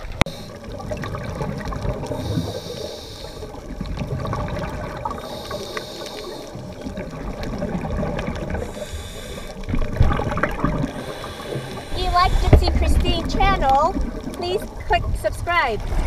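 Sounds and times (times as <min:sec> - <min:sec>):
bubbling exhaled air: 0:00.0 - 0:14.8
regulator hissing inhalations: 0:02.2 - 0:03.6, 0:05.2 - 0:06.6, 0:08.6 - 0:09.7, 0:10.9 - 0:12.7.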